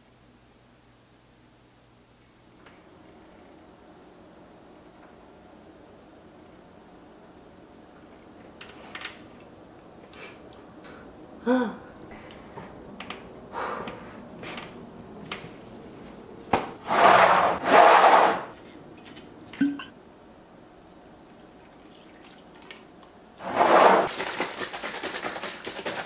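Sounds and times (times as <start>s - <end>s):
person humming: 11.4s - 12.0s
rustling and scraping: 14.4s - 18.6s, 23.4s - 24.1s.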